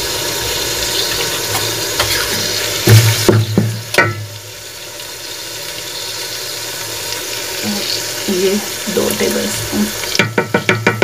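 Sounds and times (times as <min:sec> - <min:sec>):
onions sizzling in oil: 0:00.0 - 0:11.0
spoon knocking against pot: 0:10.2 - 0:11.0.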